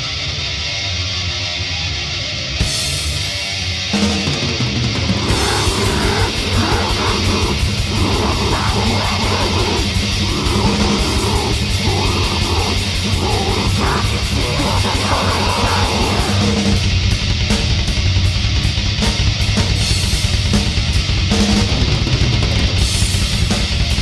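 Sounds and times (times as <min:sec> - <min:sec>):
distorted guitars and bass: 0:00.0 - 0:24.0
fast drumming: 0:04.1 - 0:24.0
growled vocals: 0:04.9 - 0:16.9.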